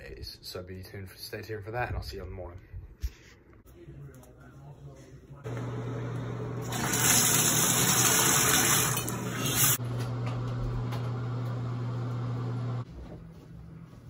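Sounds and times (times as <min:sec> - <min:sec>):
faucet water pouring into sink: 0:06.6 - 0:09.8.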